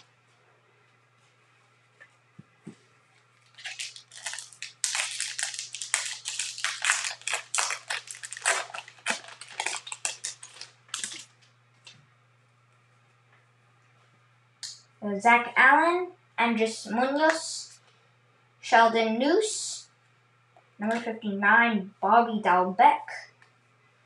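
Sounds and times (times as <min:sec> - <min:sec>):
card pack wrapper crinkling: 0:03.4 - 0:11.4.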